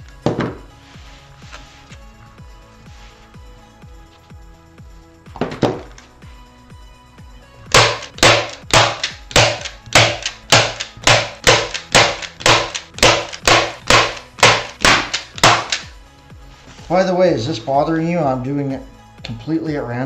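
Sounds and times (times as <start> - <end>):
staple gun snapping: 7.7 - 15.9.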